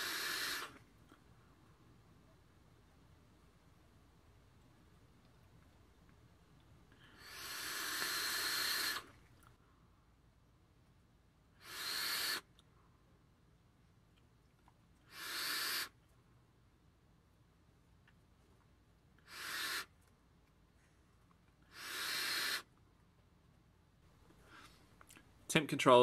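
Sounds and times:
breathy vaping draws: 0.0 - 0.9, 6.9 - 9.3.

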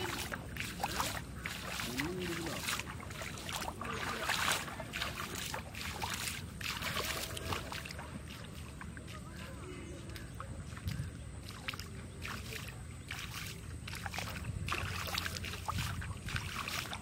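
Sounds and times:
voices calling: 0.0 - 5.8, 6.4 - 13.9
water splashing and sloshing: 0.0 - 17.0.

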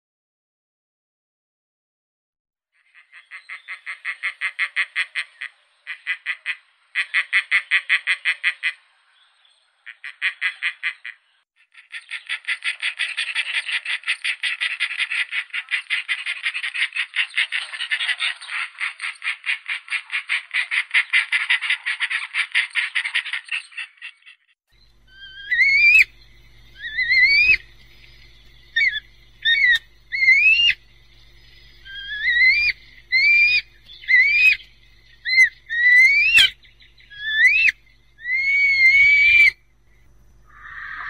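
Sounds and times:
vulture rattling call: 9.9 - 24.1, 25.1 - 27.7, 28.7 - 30.9, 31.8 - 39.6, 40.4 - 41.0.

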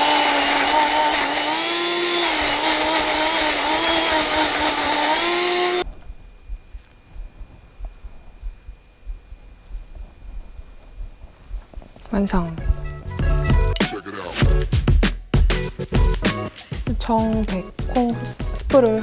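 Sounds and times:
blender motor running: 0.0 - 5.8.

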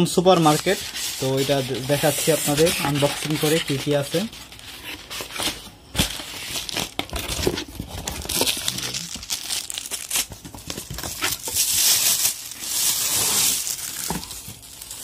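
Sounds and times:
plastic bags crinkling: 6.6 - 15.0.

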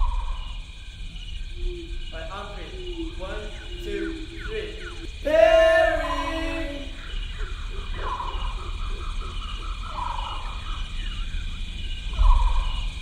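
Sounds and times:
person yelling like an animal: 5.2 - 7.0.

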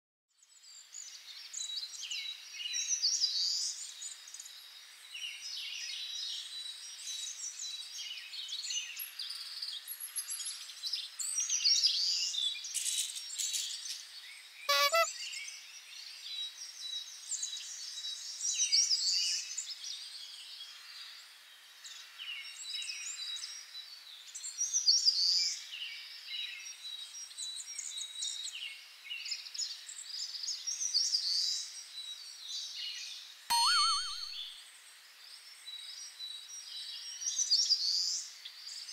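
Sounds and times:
birds chirping and calling: 14.7 - 15.1.

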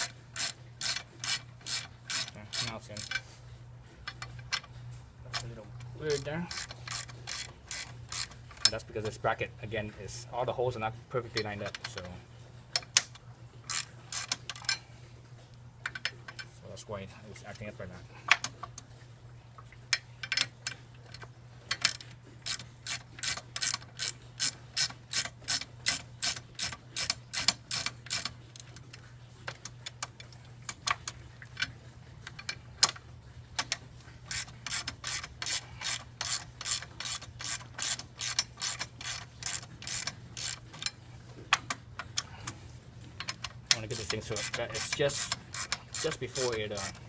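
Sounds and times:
ratchet wrench clicking: 0.0 - 3.2, 6.1 - 8.8, 12.8 - 14.8, 21.7 - 28.7, 33.6 - 42.3, 43.2 - 47.0.

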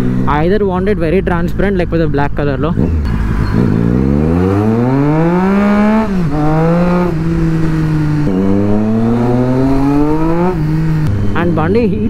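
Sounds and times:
motorcycle engine revving through gears: 2.5 - 11.8.

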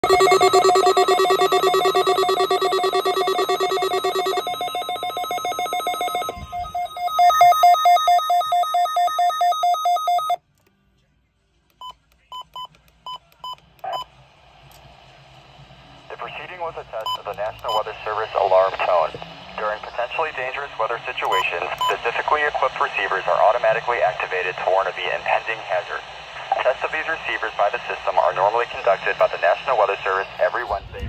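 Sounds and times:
weather radio alarms beeping: 0.0 - 10.4, 16.2 - 19.1, 19.7 - 22.8.

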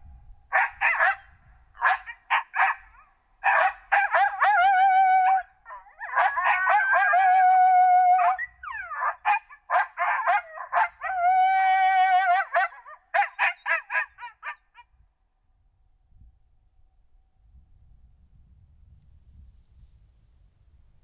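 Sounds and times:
coyote howls and yips: 0.5 - 14.9.

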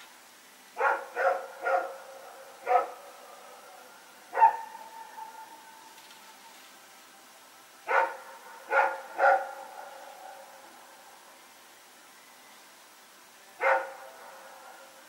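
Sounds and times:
faint steady tone: 0.0 - 15.0
dog barking: 0.8 - 3.1, 4.3 - 5.5, 7.9 - 10.5, 13.6 - 14.9.

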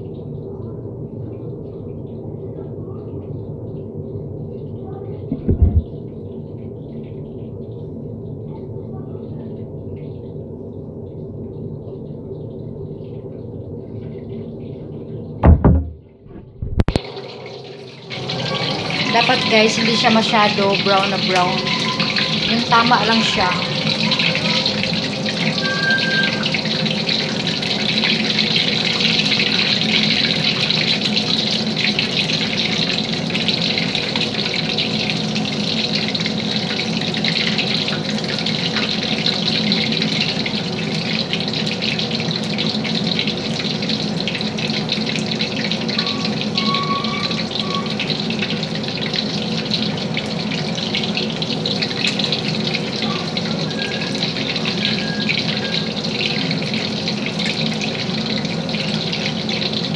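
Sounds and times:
hot oil sizzling: 16.6 - 59.9.

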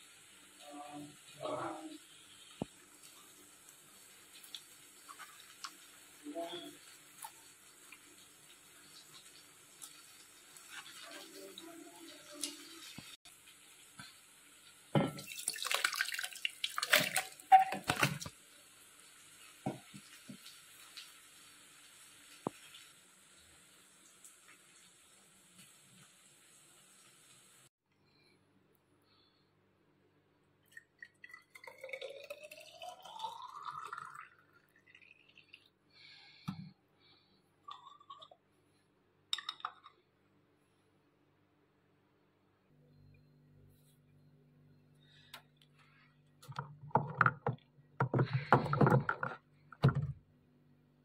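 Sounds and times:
juice pouring into a glass bottle: 30.6 - 36.2, 37.6 - 38.4.

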